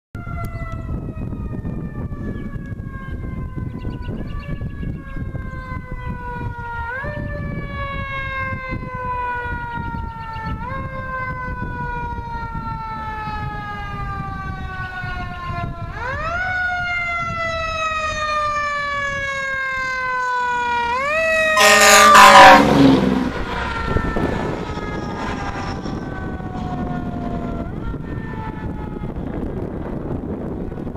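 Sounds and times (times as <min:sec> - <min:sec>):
loud horn blast: 0:21.4 - 0:27.8.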